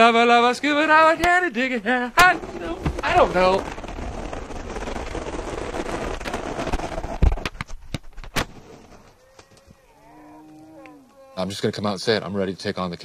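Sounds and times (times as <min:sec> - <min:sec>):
skateboard wheels grinding on asphalt: 0:01.3 - 0:09.1
heavy thud: 0:02.2 - 0:03.9.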